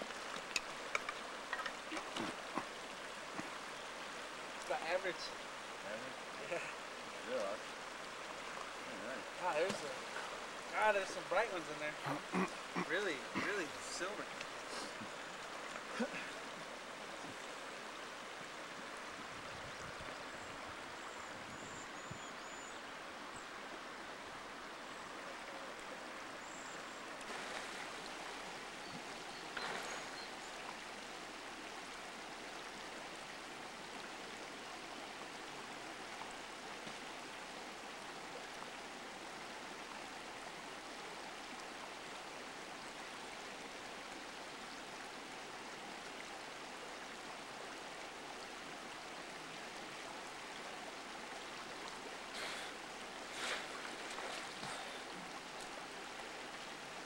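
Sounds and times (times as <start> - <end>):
creek water over stones: 0.0 - 57.0
faint clicks: 0.3 - 2.7.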